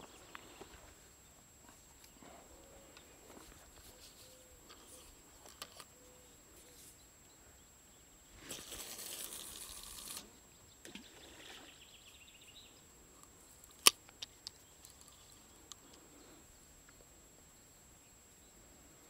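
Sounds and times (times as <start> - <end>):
fishing line swishing off reel: 8.4 - 10.3
sharp reel click: 8.5 - 10.3.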